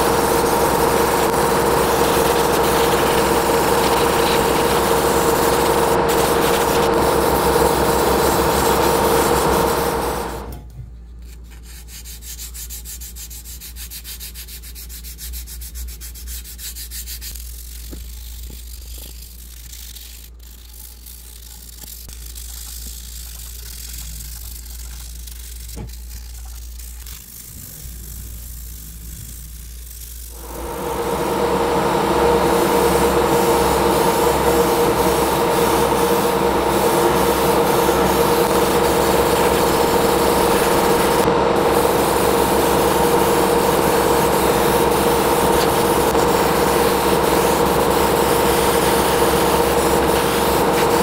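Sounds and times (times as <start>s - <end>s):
low hum: 0.0s - 10.7s, 26.7s - 51.0s
power tool whining: 30.4s - 51.0s.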